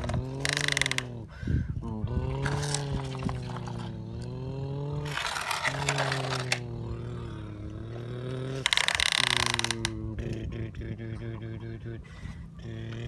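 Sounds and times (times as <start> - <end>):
droning hum: 0.0 - 13.0
toy trucks scraping through dirt: 5.0 - 6.8.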